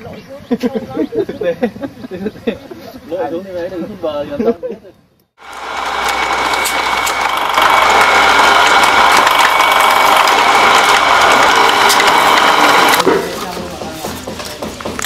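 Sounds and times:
bamboo strips rattling through tool: 5.4 - 15.0.

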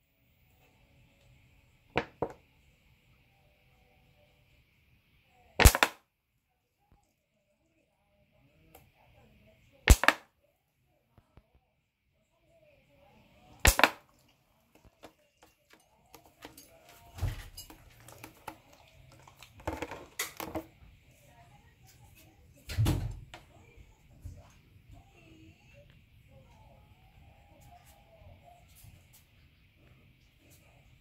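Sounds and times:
plastic bottle knocking and crackling: 2.0 - 2.4, 9.9 - 10.2, 13.7 - 14.0, 17.2 - 20.7.

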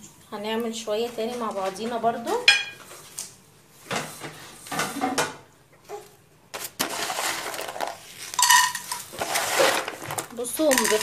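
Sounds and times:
snack pellets clattering in pan: 6.8 - 11.0.

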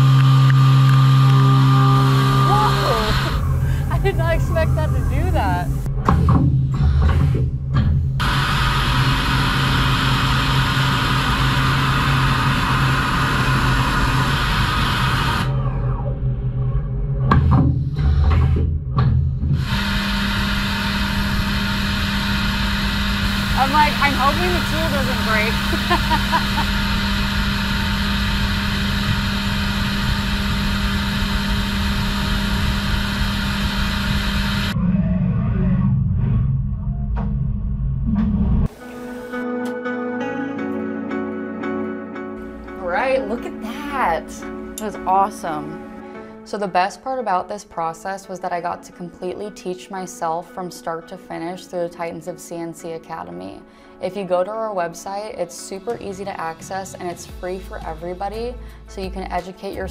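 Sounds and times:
milling machine cutting hiss: 0.0 - 5.9, 8.2 - 15.5, 19.6 - 34.8
tool engraving aluminum: 0.0 - 5.9, 8.2 - 15.6, 19.6 - 34.8
low machine hum: 0.0 - 38.7.

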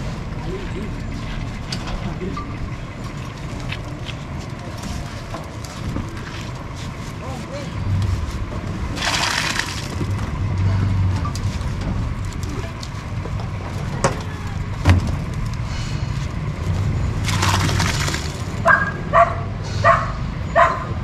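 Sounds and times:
concrete mixer engine rumbling: 0.0 - 21.0
dog barking: 18.6 - 21.0.

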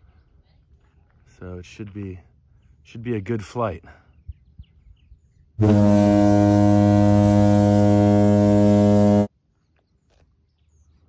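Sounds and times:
low steady horn blast: 5.6 - 9.3.

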